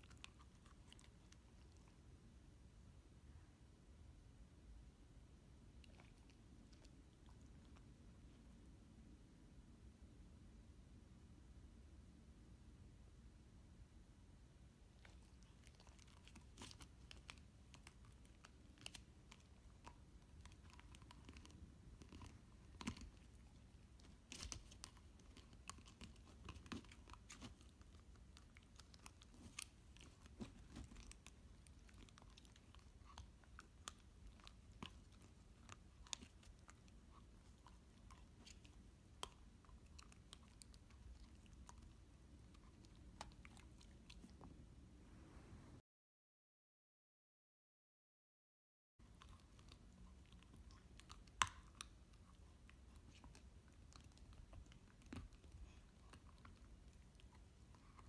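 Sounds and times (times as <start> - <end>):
puppy chewing plastic ball: 15.0 - 44.5, 49.1 - 58.0.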